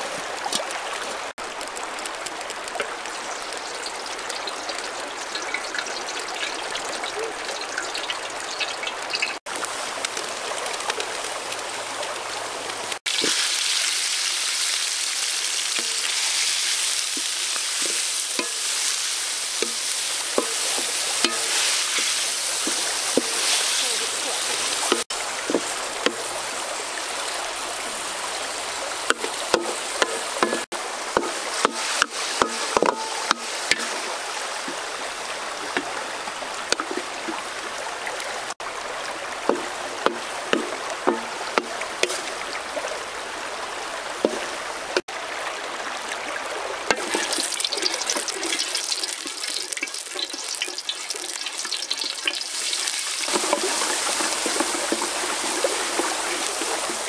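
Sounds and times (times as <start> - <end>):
stream water rushing: 0.0 - 57.0
wooden spatula scraping metal wok: 19.6 - 26.3, 53.3 - 57.0.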